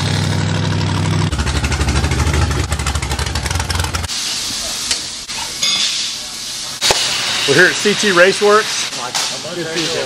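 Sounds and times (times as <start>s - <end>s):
race car engine running: 0.0s - 4.1s
steady hiss: 4.1s - 10.0s.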